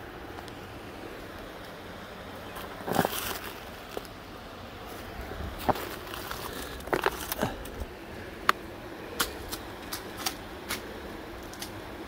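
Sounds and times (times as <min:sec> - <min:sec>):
footsteps crunching on shale and leaves: 0:02.4 - 0:04.2, 0:04.8 - 0:07.9.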